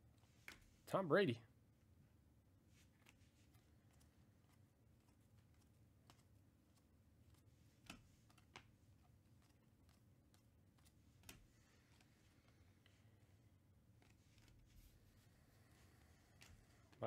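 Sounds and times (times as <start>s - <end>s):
trading cards flipping clicks: 7.8s - 8.8s.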